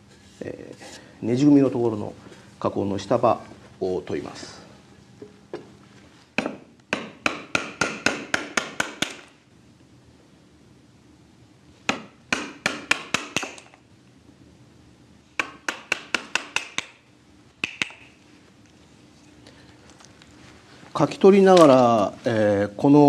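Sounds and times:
hammer striking chisel into wood: 6.4s - 9.3s, 11.9s - 13.8s, 15.4s - 17.0s.

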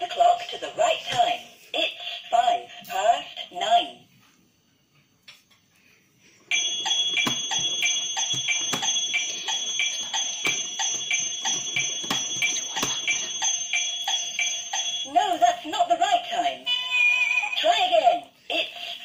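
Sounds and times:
toy clock ticking: 6.5s - 15.2s.

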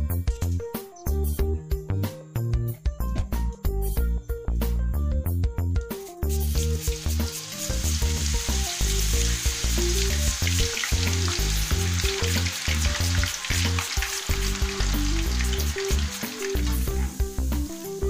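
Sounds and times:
potato sizzling in hot oil: 6.4s - 18.0s.

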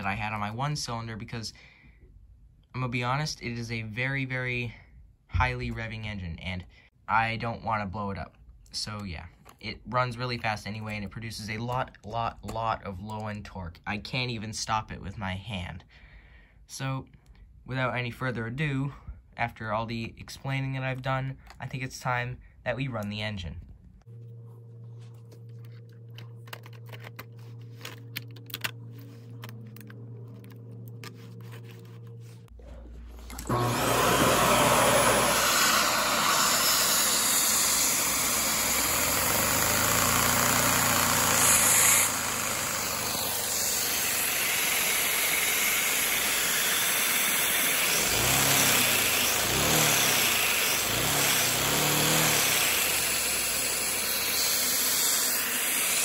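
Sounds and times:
low hum: 23.6s - 44.3s
vacuum cleaner suction rush: 32.6s - 56.0s
toy engine running fast: 33.4s - 56.0s.

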